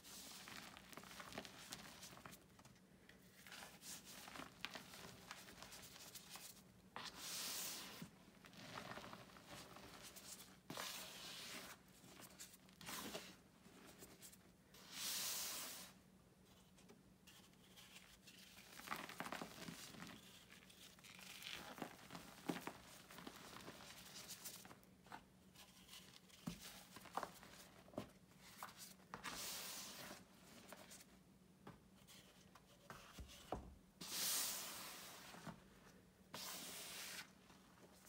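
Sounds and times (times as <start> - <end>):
chalk crunching and rustling: 36.3 - 38.0.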